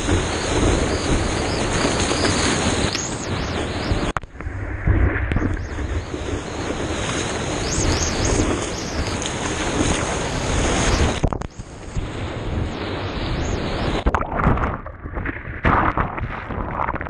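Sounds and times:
water splashing and sloshing: 0.0 - 17.0
wind on microphone: 0.0 - 17.0
rushing whitewater: 5.7 - 14.7.

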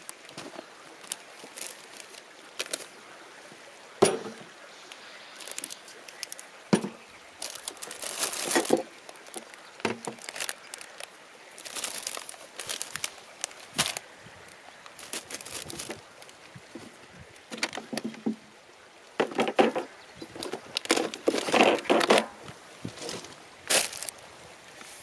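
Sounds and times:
plastic packaging crinkling: 0.0 - 2.9, 5.4 - 6.4, 7.4 - 14.0, 15.0 - 16.4, 23.0 - 24.1.

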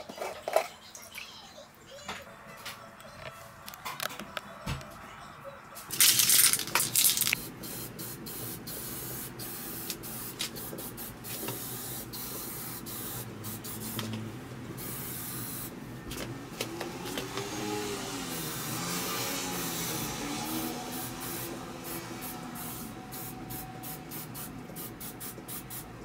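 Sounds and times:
spray paint can hissing: 5.9 - 14.0, 14.8 - 15.7, 20.9 - 22.0, 22.6 - 25.8.

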